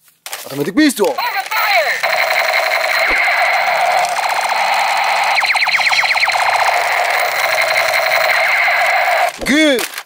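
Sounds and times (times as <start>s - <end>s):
toy gun buzzing tone: 1.2s - 9.4s
falling electronic zaps: 1.3s - 9.4s.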